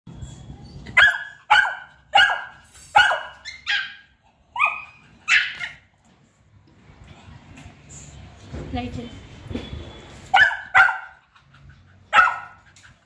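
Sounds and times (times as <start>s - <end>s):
dog barking: 1.0s - 4.0s, 10.3s - 11.2s, 12.1s - 12.6s.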